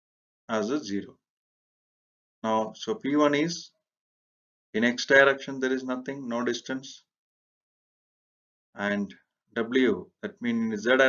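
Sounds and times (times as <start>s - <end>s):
man speaking: 0.5s - 1.1s, 2.4s - 3.7s, 4.8s - 7.0s, 8.8s - 11.0s.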